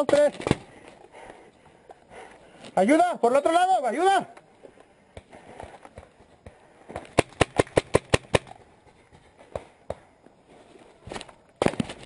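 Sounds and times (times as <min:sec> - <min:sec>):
paintball marker firing: 0:06.9 - 0:08.6.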